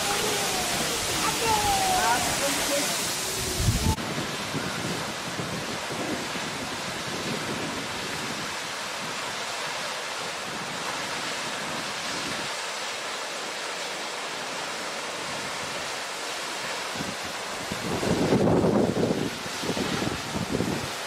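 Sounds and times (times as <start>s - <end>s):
wind buffeting microphone: 0.0s - 8.6s, 17.0s - 21.0s
waterfall rushing: 0.0s - 21.0s.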